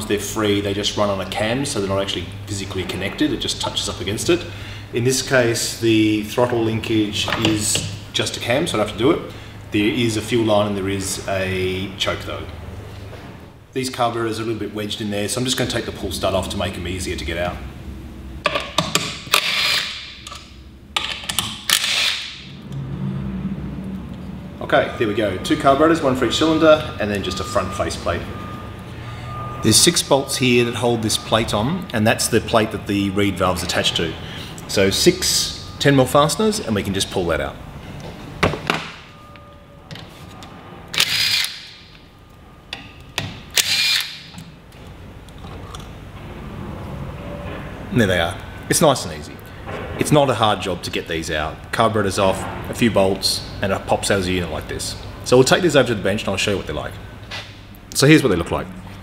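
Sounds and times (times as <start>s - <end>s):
metal clicks and knocks: 18.4s - 19.4s, 20.2s - 21.8s
cordless drill spinning bolts: 19.3s - 20.0s, 21.2s - 22.3s, 41.0s - 41.7s, 43.5s - 44.3s.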